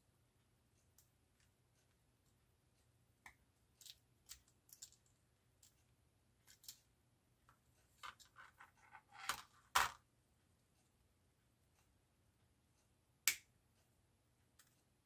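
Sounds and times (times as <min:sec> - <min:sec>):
plastic parts scraping: 0:08.0 - 0:10.0.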